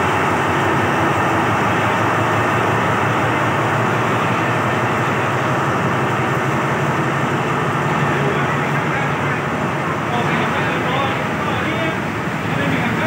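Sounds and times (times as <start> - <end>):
diesel locomotive engine droning: 0.0 - 13.0
train coaches rolling past: 0.0 - 13.0.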